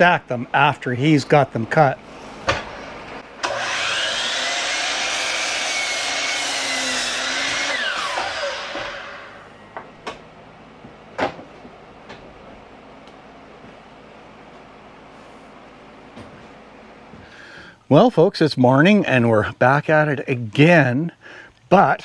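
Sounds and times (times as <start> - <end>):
miter saw cutting wood: 3.3 - 9.9.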